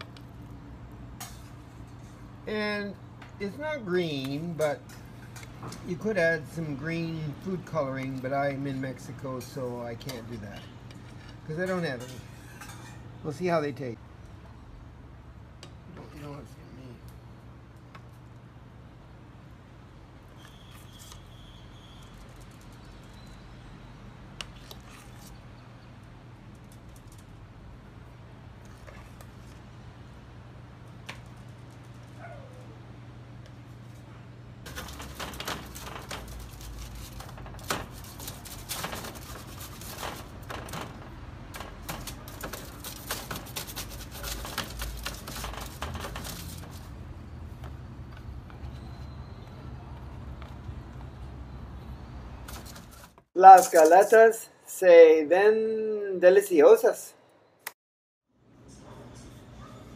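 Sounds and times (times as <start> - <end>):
metal spatula scraping a tray: 10.6 - 13.0.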